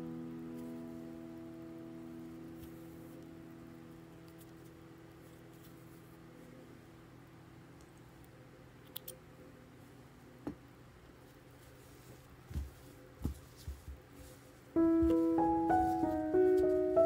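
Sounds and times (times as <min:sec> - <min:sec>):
hands handling knitted sweater: 0:11.3 - 0:17.0.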